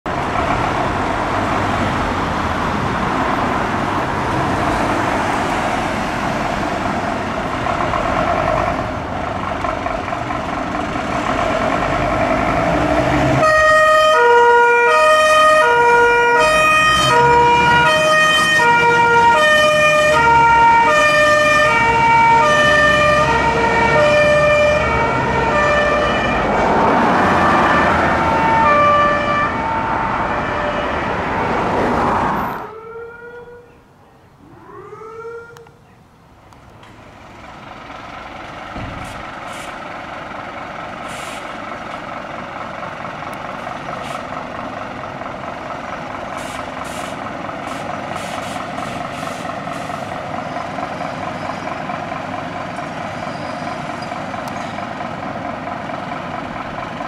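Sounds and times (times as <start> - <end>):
diesel engine rumbling: 0.1 - 57.0
rising siren wail: 11.2 - 33.7, 34.4 - 35.8
two-tone siren: 13.4 - 31.6, 32.5 - 33.8, 34.4 - 35.8.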